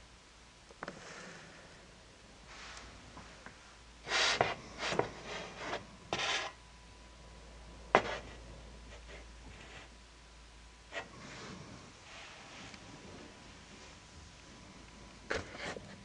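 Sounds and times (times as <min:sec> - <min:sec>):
rubbing and scraping: 0:04.1 - 0:06.6.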